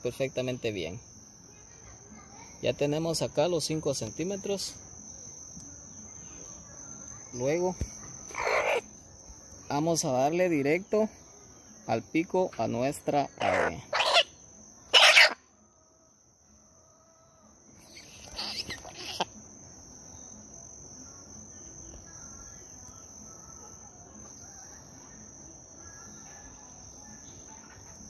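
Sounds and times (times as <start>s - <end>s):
insects buzzing: 0.0s - 28.0s.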